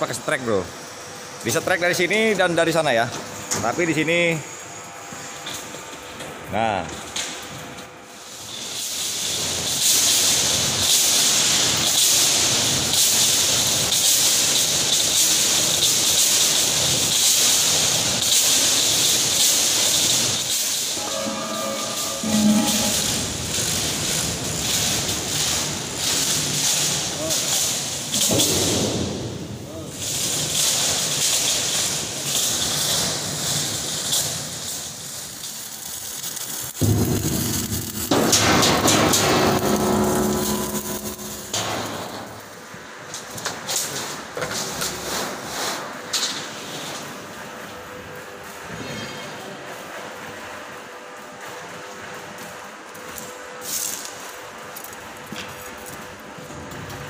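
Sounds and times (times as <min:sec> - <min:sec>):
welding arc hissing: 0:08.1 - 0:42.8
loud high-pitched hiss: 0:17.4 - 0:25.1
low hum: 0:21.0 - 0:23.8, 0:36.8 - 0:42.4.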